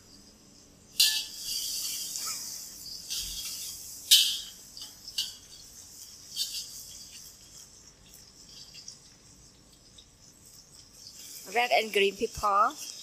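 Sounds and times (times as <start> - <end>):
garlic sizzling in oil: 0.8 - 13.0.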